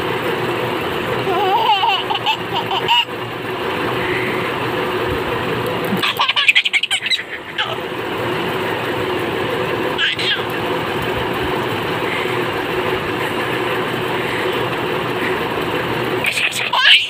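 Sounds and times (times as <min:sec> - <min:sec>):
background hum: 0:00.0 - 0:17.0
baby laughing: 0:01.2 - 0:03.2, 0:05.8 - 0:08.0, 0:09.9 - 0:10.9, 0:16.2 - 0:17.0
baby vocalizing: 0:10.0 - 0:10.6.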